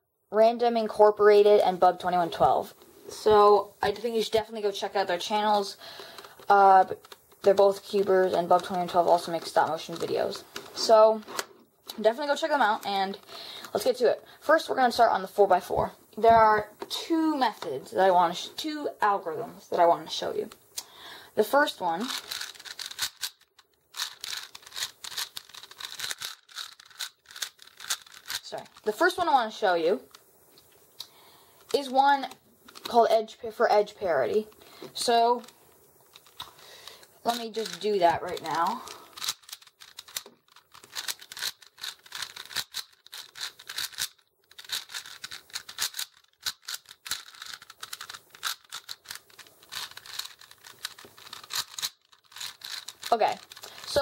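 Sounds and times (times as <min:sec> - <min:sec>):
puzzle cube clicking and scraping: 0:01.4 - 0:15.1, 0:21.4 - 0:54.0.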